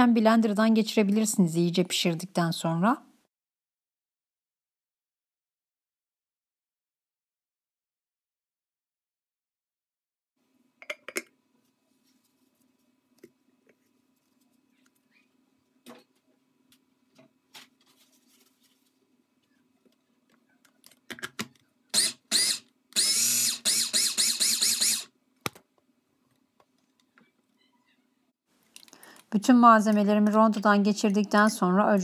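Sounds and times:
mini chopper whirring: 22.0s - 25.1s.

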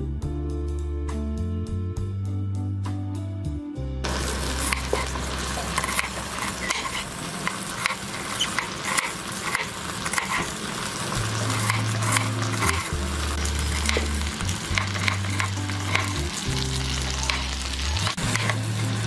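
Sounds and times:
soft low music: 0.0s - 6.1s, 11.0s - 19.0s
knife cutting onion on wooden board: 4.6s - 10.6s, 11.3s - 18.6s.

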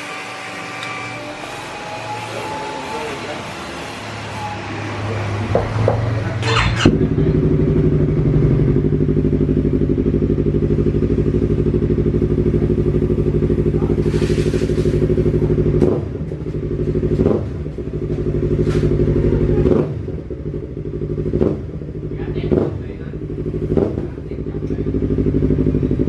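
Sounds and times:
motorcycle engine idling: 5.4s - 26.0s.

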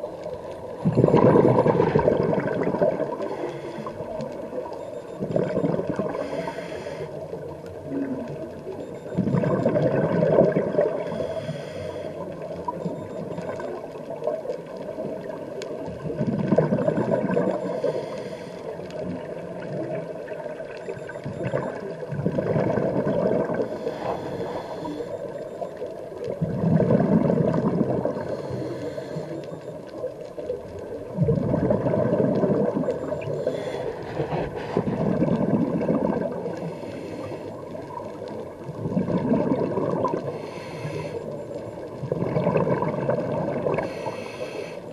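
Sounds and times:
bubbling exhale underwater: 0.7s - 6.5s, 9.0s - 11.5s, 15.1s - 18.3s, 19.0s - 25.0s, 25.6s - 29.0s, 31.0s - 44.2s
regulator inhale hiss: 3.2s - 4.2s, 6.1s - 7.4s, 10.9s - 12.5s, 17.6s - 18.8s, 23.7s - 25.4s, 28.2s - 29.6s, 33.2s - 35.1s, 36.6s - 37.8s, 40.2s - 41.4s, 43.8s - 44.9s.

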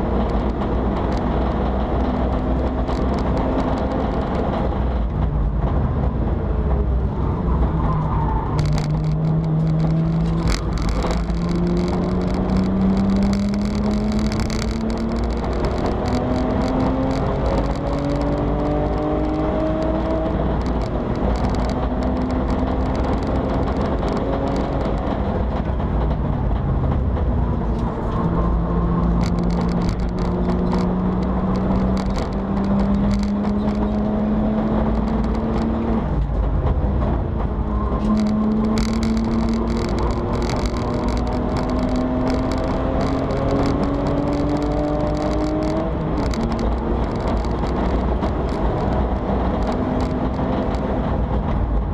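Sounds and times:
sharp clicks: 2.1s - 4.6s, 8.6s - 25.6s, 29.1s - 36.3s, 38.0s - 51.0s.

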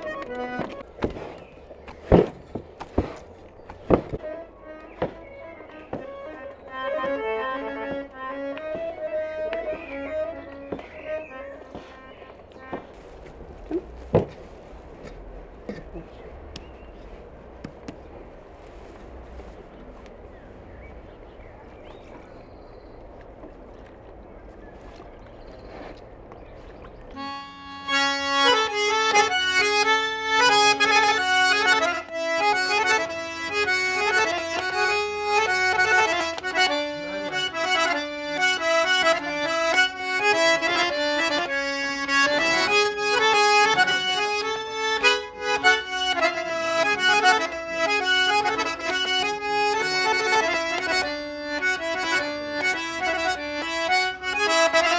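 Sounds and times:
accordion melody: 0.0s - 13.9s, 27.1s - 54.9s
faint background noise: 0.0s - 54.9s.

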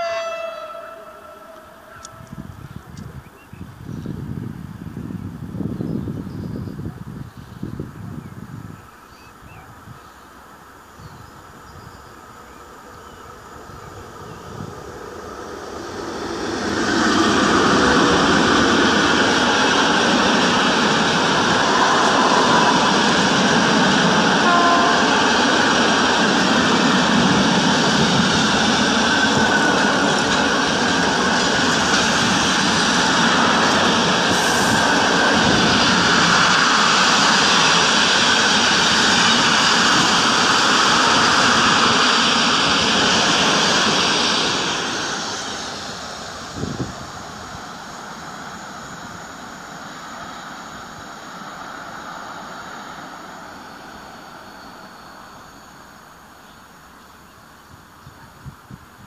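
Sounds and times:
freight train passing: 0.0s - 59.0s.

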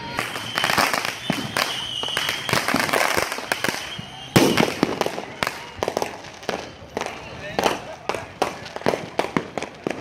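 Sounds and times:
high whistle: 0.0s - 4.8s
fireworks popping and banging: 0.0s - 10.0s.

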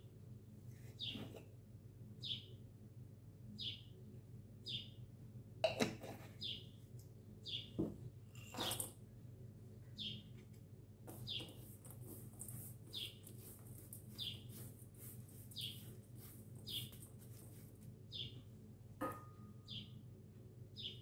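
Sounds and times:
bird chirping: 1.0s - 1.3s, 2.2s - 2.5s, 3.6s - 3.9s, 4.6s - 5.0s, 6.4s - 6.8s, 7.4s - 7.8s, 9.9s - 10.3s, 11.2s - 11.8s, 12.6s - 14.7s, 15.3s - 16.0s, 16.6s - 17.1s, 18.1s - 18.4s, 19.6s - 20.0s, 20.8s - 21.0s
dry ingredients being stirred: 11.1s - 18.0s.

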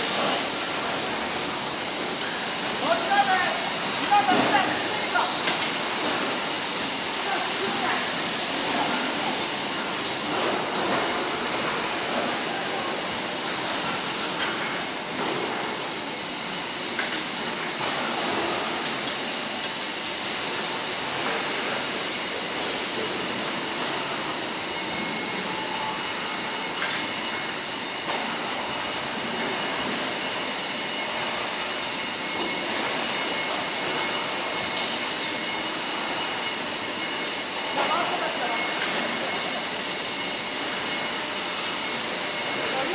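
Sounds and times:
conveyor machinery din: 0.0s - 42.9s.

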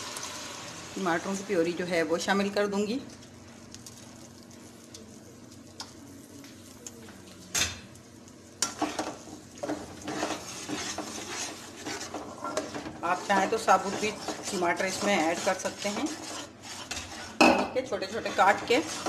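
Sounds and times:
puree sizzling in hot oil: 0.0s - 19.0s
spoon stirring and scraping pot: 8.6s - 19.0s.

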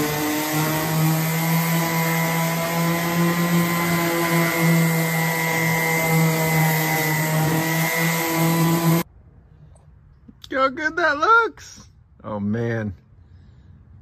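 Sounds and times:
orbital sander motor hum: 0.0s - 9.0s
sandpaper rasping on wood: 0.0s - 9.0s.

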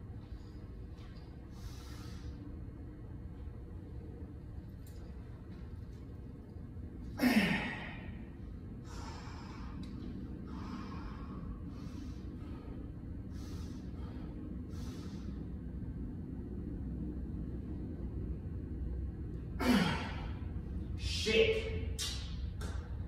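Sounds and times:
man breathing heavily: 1.4s - 2.7s, 7.1s - 16.0s, 19.6s - 20.9s
man grunting with effort: 7.2s - 8.0s, 19.6s - 20.2s.

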